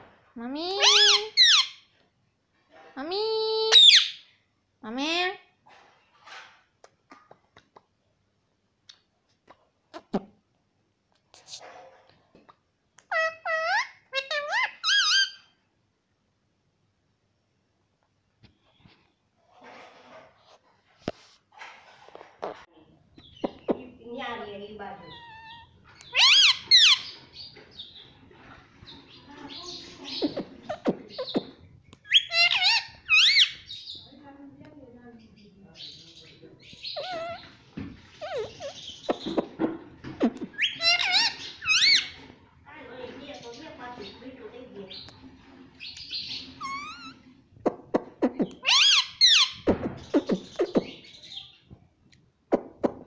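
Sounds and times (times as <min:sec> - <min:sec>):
parakeet calling: 0:00.7 - 0:01.8, 0:03.5 - 0:04.3, 0:13.1 - 0:15.5, 0:24.8 - 0:28.1, 0:28.9 - 0:34.1, 0:35.8 - 0:42.2, 0:45.8 - 0:47.3, 0:48.5 - 0:51.6.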